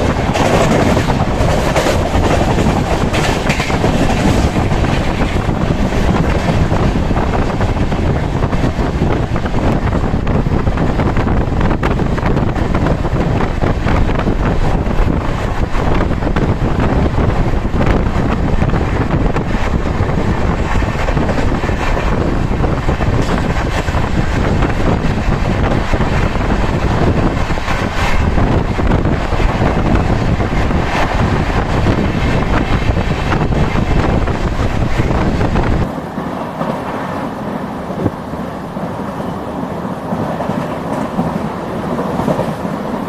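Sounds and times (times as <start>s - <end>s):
train running noise: 0.0s - 43.0s
wind buffeting microphone: 0.0s - 43.0s.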